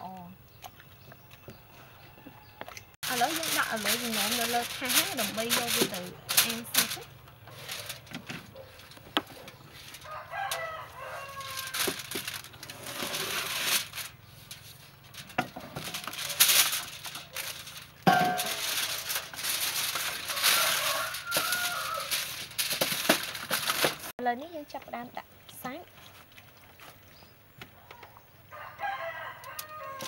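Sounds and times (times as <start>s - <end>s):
aluminium foil crinkling: 3.0s - 24.1s.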